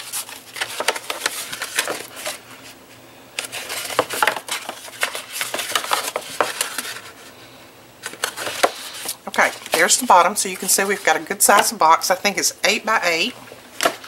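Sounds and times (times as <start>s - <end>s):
cardstock crackling and clicking: 0.0s - 2.4s, 3.4s - 7.1s, 8.0s - 11.8s.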